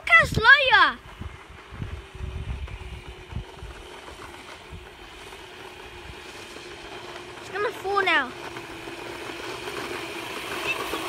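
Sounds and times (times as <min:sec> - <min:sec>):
wind rumbling on microphone: 0:00.0 - 0:06.4
small vehicle humming and rolling: 0:00.0 - 0:11.0.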